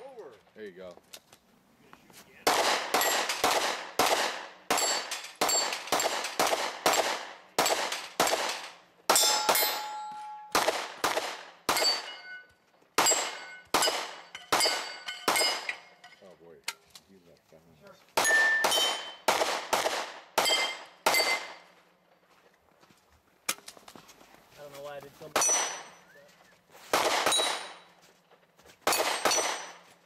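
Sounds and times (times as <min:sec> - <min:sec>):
carbine gunshots: 0:02.4 - 0:12.2, 0:13.0 - 0:15.8, 0:18.2 - 0:21.6, 0:25.3 - 0:26.0, 0:26.9 - 0:27.9, 0:28.8 - 0:29.8
steel targets clanging: 0:04.7 - 0:06.4, 0:07.9 - 0:10.6, 0:11.7 - 0:16.3, 0:18.2 - 0:19.3, 0:20.4 - 0:21.6, 0:25.3 - 0:26.1.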